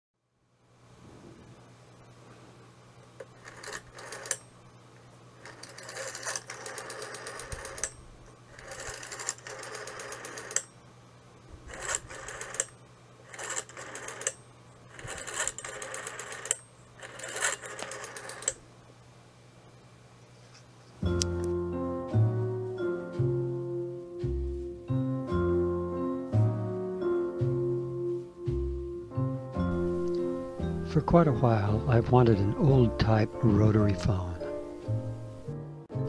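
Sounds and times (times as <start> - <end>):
faint low hum: 0.2 - 21.7
rotary dial clicking: 3.2 - 4.5, 5.4 - 10.7, 11.7 - 18.6
rotary dial scraping: 3.2 - 4.5, 5.4 - 10.7, 11.7 - 18.6.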